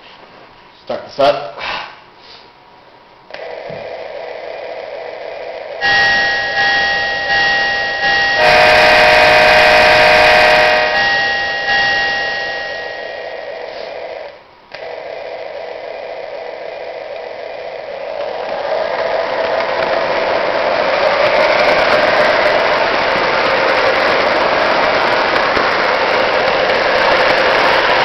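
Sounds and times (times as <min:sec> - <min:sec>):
steady electronic hum: 0:02.6 - 0:28.0
ringing chime-like tones: 0:05.8 - 0:13.7
toy train horn blast: 0:05.8 - 0:14.0.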